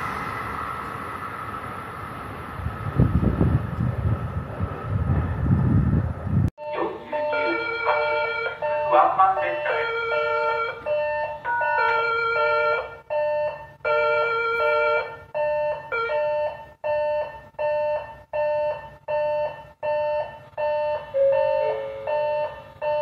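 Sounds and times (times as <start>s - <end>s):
electronic train approach chime: 6.6s - 23.0s.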